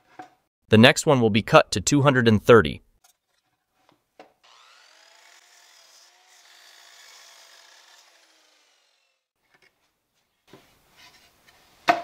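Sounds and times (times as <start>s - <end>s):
miter saw blade whine: 4.5s - 9.3s.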